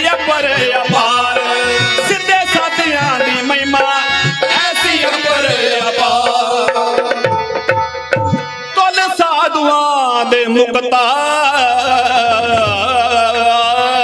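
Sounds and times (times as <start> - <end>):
harmonium melody: 0.0 - 14.0
hand drum beat: 0.6 - 8.6.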